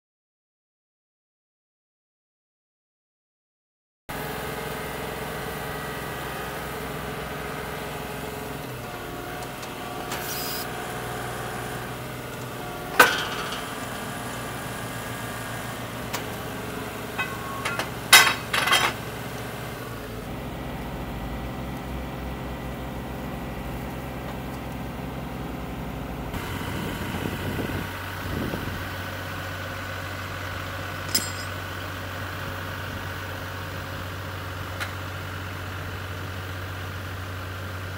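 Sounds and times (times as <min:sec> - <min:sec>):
drilling rig engine droning: 0:04.2 - 0:37.8
metallic clanks of drill rods: 0:13.0 - 0:13.9, 0:17.2 - 0:19.0, 0:31.1 - 0:31.6.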